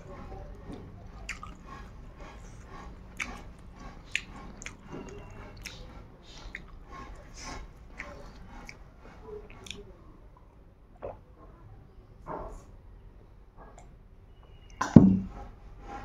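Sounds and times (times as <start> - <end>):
person chewing food: 0.1 - 11.2
mouth clicks and smacks: 0.6 - 8.8, 9.4 - 11.2.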